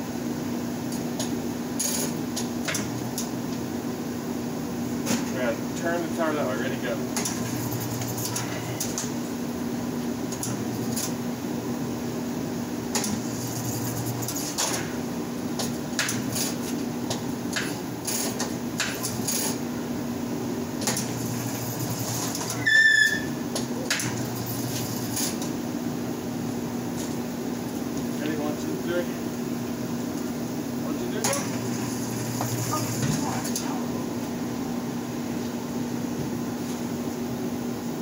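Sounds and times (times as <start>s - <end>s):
loud sharp high squeak: 22.5s - 23.4s.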